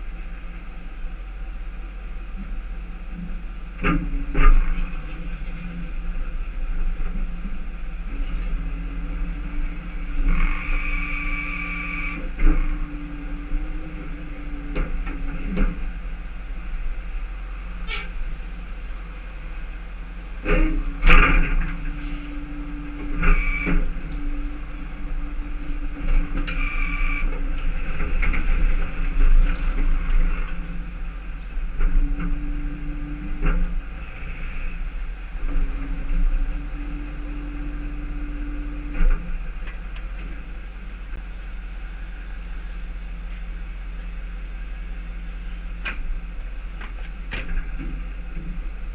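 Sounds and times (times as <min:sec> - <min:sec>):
tow truck engine running: 0:00.0 - 0:48.9
short high squeals: 0:10.4 - 0:12.2, 0:21.7 - 0:24.6, 0:26.4 - 0:27.3.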